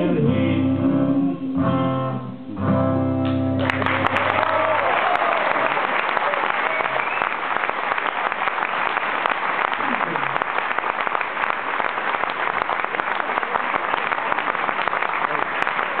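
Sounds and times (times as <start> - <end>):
audience applauding: 3.6 - 16.0.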